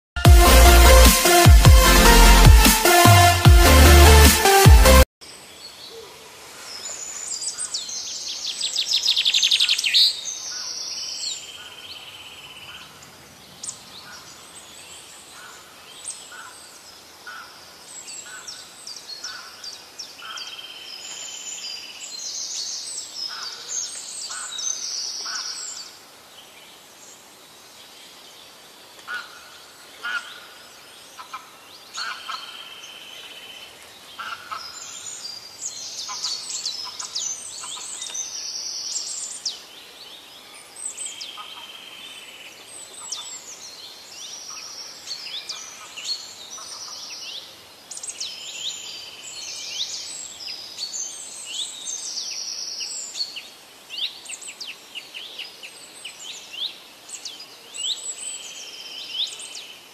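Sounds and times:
birds calling and chirping: 29.0 - 39.7.

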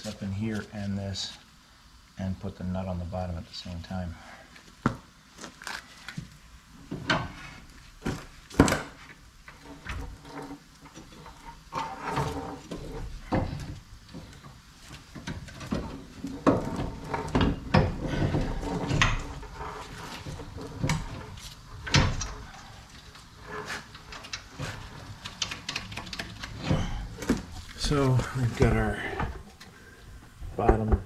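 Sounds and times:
metal clunks and scrapes: 6.9 - 14.4, 15.0 - 29.8.

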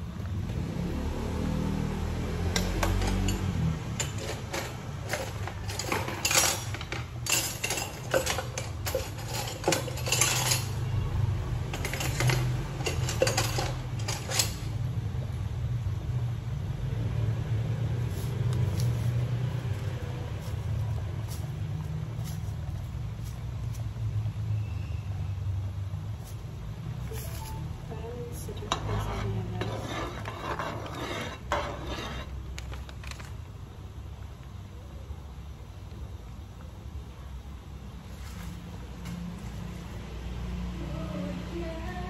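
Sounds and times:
metallic clinks and clatter: 2.5 - 11.0, 11.6 - 14.8.

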